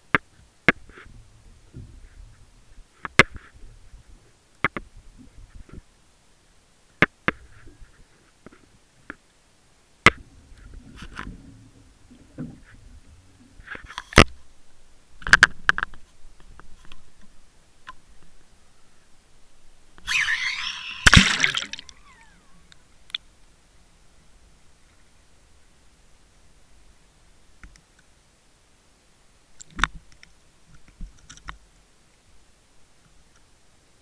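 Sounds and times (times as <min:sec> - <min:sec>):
faint low rumbling: 0:10.2 - 0:13.7.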